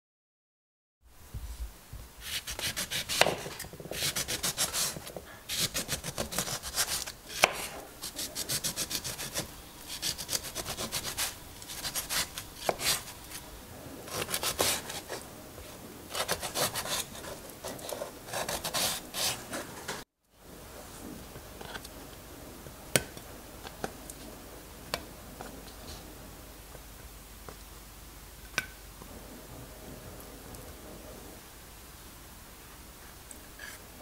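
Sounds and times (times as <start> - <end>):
knife sawing through lemon: 2.2 - 13.4, 14.1 - 15.2, 16.1 - 19.7.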